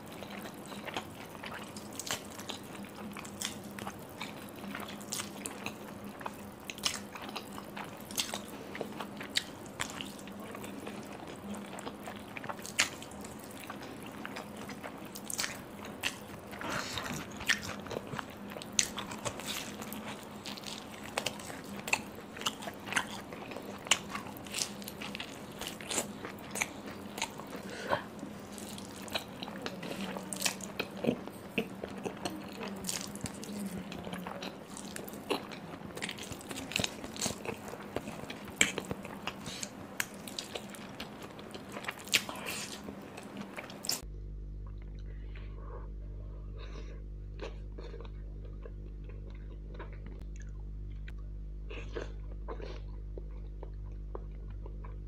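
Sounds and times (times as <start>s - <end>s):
chewing noodles: 0.0s - 44.0s, 46.6s - 55.0s
biting into fried dumplings: 0.3s - 44.0s.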